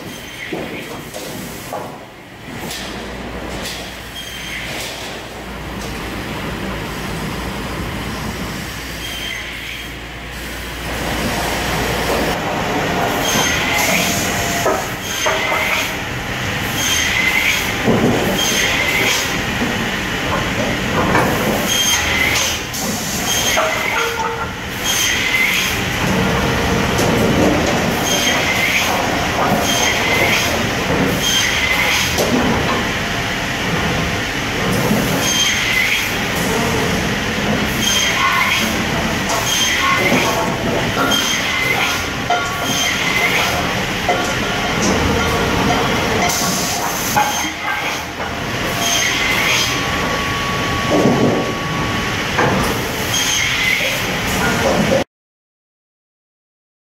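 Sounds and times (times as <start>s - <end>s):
saw and feed rollers running: 0.0s - 55.0s
saw cutting screech: 9.0s - 9.8s, 13.2s - 14.2s, 16.8s - 17.7s, 18.4s - 19.1s, 24.8s - 25.7s, 28.0s - 28.9s, 29.6s - 30.5s, 31.2s - 32.1s, 35.2s - 36.1s, 37.8s - 38.7s, 39.4s - 40.1s, 41.0s - 42.0s, 42.6s - 43.6s, 48.7s - 49.8s, 53.0s - 54.0s.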